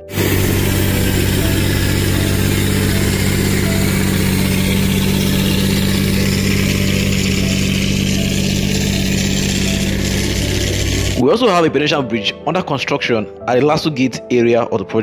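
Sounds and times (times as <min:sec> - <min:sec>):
diesel engine running: 0:00.0 - 0:11.2.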